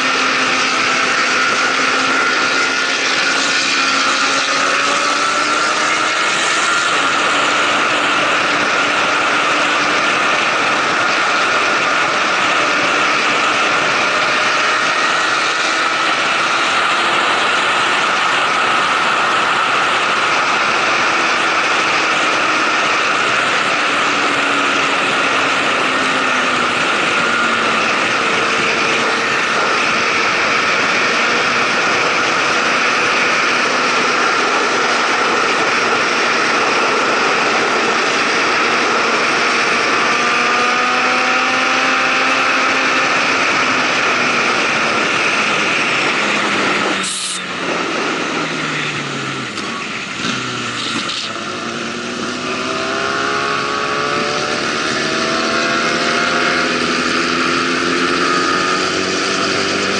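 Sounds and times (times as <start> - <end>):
motorcycle engine: 0.0 - 59.9
wind rush over microphone: 0.0 - 59.9.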